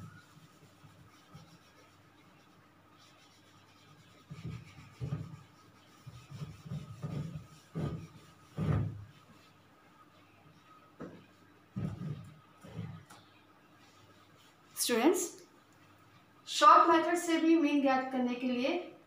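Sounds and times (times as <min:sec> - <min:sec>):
whiteboard being wiped by hand: 0:00.0 - 0:14.8.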